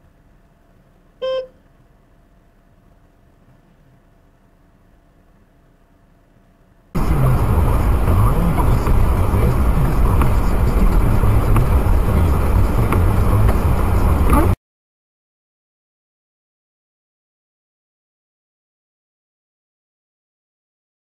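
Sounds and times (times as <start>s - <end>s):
car road and engine rumble: 0.0s - 14.6s.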